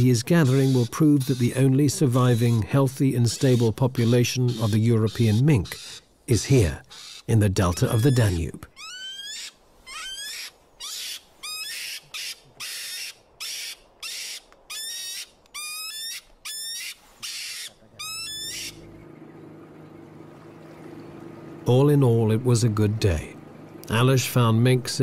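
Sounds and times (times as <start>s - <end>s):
animal squealing: 0.0s - 18.9s
steady low hum: 17.8s - 25.0s.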